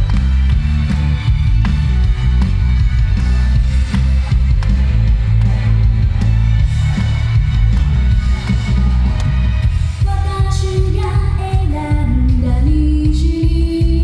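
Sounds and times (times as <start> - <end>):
loud pop-rock instrumental: 0.0 - 10.9.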